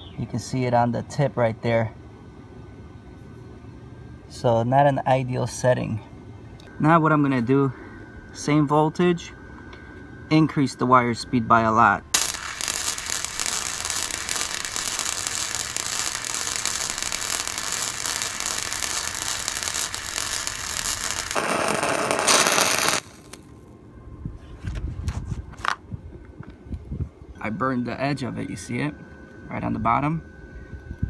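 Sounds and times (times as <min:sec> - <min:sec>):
welder arc crackling: 0:12.2 - 0:23.5.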